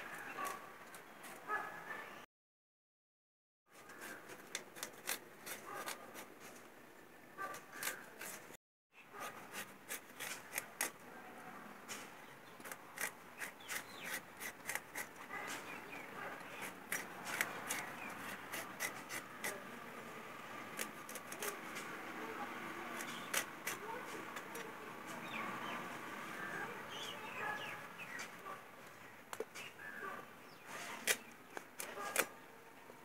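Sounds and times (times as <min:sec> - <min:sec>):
knife scraping peel: 0:03.8 - 0:06.6, 0:07.5 - 0:08.6, 0:09.2 - 0:11.0, 0:11.9 - 0:19.7, 0:20.7 - 0:21.9, 0:22.8 - 0:25.8, 0:30.6 - 0:32.4.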